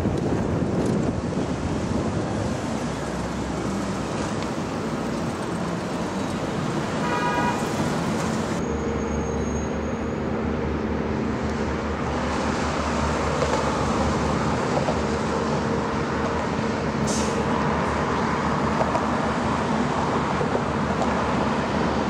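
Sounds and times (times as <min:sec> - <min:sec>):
highway traffic hum: 0:00.0 - 0:22.0
passing cars: 0:00.0 - 0:22.0
car horn toot: 0:07.0 - 0:07.8.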